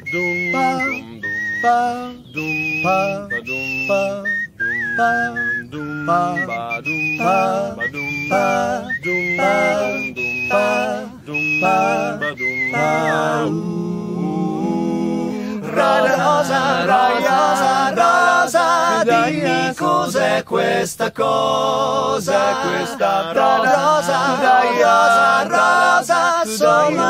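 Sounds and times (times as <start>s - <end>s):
person whistling melody: 0.0s - 13.5s
male voices singing wordless chords: 0.0s - 27.0s.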